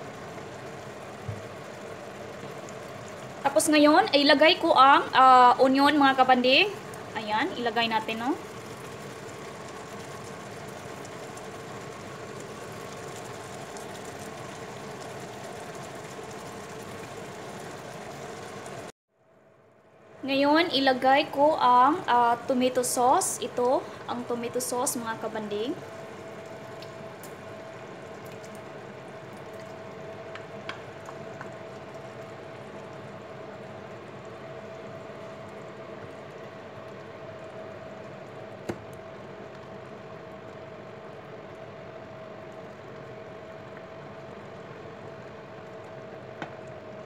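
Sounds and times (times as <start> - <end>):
low steady hum: 0.0 - 47.0
chicken sizzling in a frying pan: 5.7 - 18.9.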